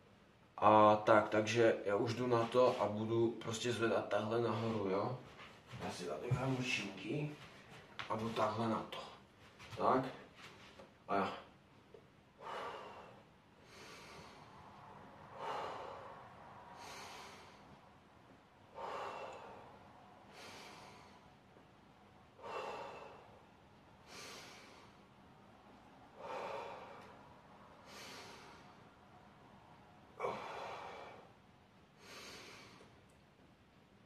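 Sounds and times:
man breathing heavily: 4.2s - 5.1s, 12.4s - 25.3s, 26.0s - 29.2s, 30.0s - 33.0s.

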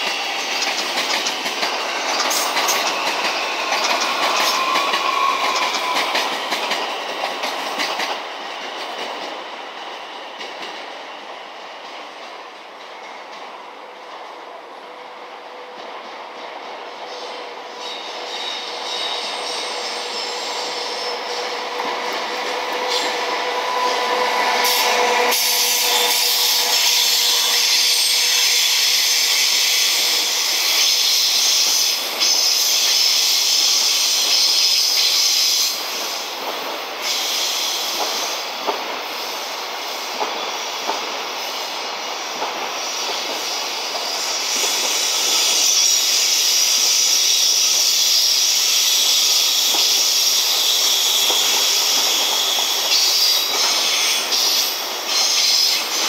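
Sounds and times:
locomotive hum: 0.0s - 10.3s, 17.3s - 28.0s
train wheels hissing on rails: 0.0s - 56.0s.

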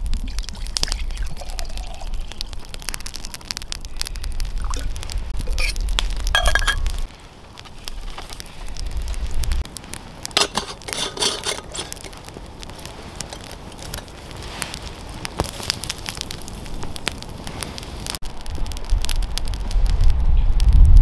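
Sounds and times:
campfire crackling and popping: 0.0s - 21.0s
rustling: 1.5s - 18.3s.

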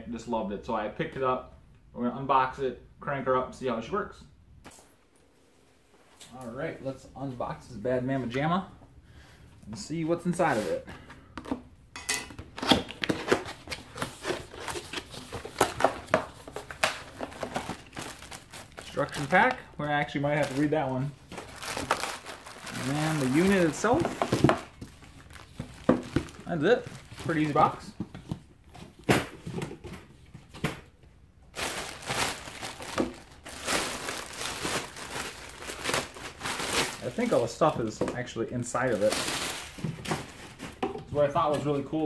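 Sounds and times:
cardboard packaging clicks and rustles: 12.4s - 30.9s, 31.5s - 41.0s.

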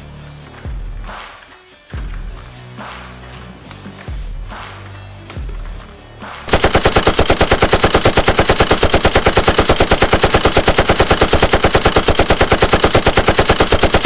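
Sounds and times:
rapid machine-gun fire: 6.5s - 14.0s.

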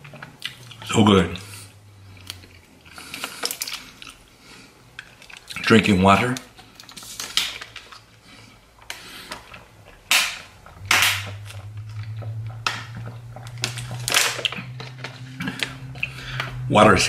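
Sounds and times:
plastic bottle crackling: 8.8s - 16.6s.

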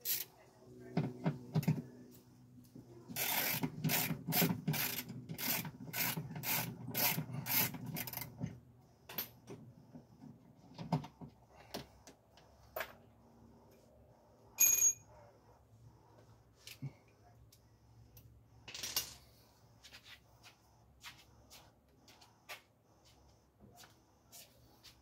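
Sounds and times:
bright metallic ring: 14.6s - 15.1s.

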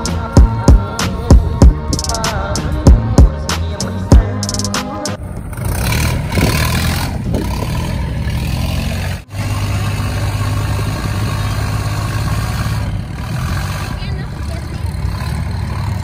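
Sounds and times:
boat engine droning: 4.9s - 16.0s.

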